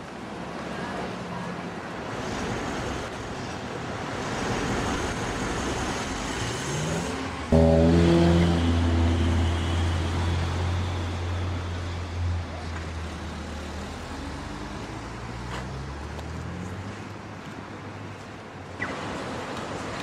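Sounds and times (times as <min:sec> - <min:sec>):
vehicle engine drone: 0:05.0 - 0:17.2
downward stepping tones: 0:07.5 - 0:09.0.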